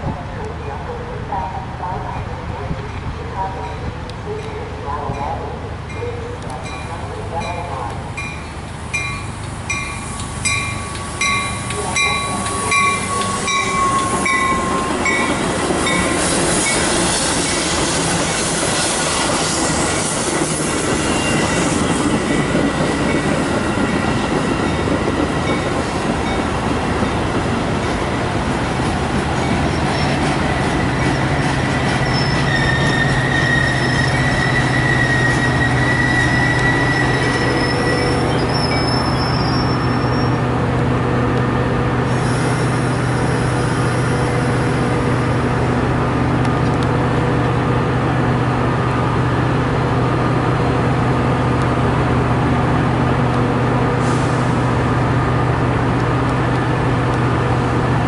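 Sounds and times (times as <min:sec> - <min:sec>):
train wheels rumbling on rails: 0:00.0 - 0:58.0
thin wheel squeal: 0:32.0 - 0:40.4.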